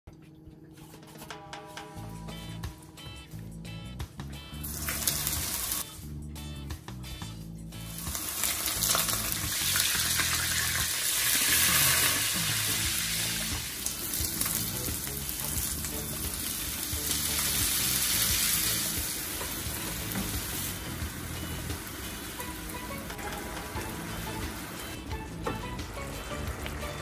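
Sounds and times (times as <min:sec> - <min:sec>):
hot oil sizzling in frying pan: 0:04.6 - 0:05.9, 0:07.8 - 0:27.0.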